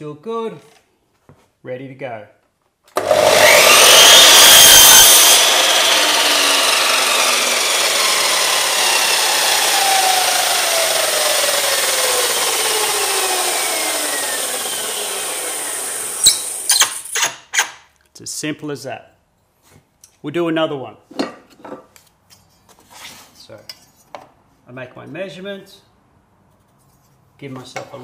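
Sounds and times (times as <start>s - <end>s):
saw blade whine spinning down: 3.0s - 17.0s
mitre saw cutting timber: 3.0s - 17.8s.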